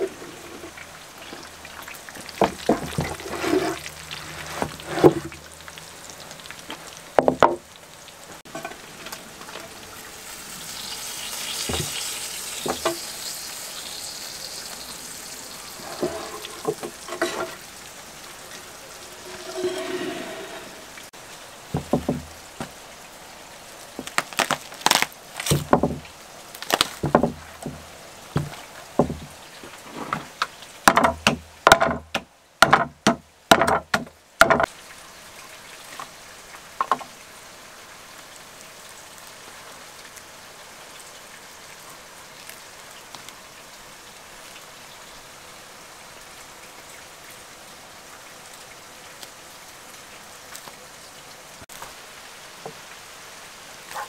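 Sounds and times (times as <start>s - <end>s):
faint steady hiss: 0.0s - 54.0s
rib bones cracking and crunching: 24.0s - 25.6s, 26.6s - 27.0s.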